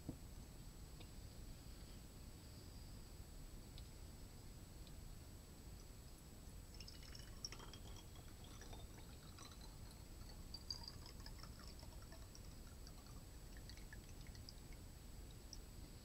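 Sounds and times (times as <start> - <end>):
liquid dripping into glass cup: 6.7 - 15.7.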